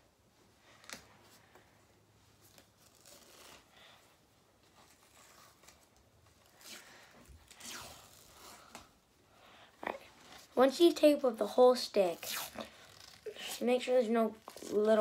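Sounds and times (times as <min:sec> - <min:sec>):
tape peeling off roll: 0:02.4 - 0:03.7, 0:04.9 - 0:08.9, 0:12.2 - 0:13.5.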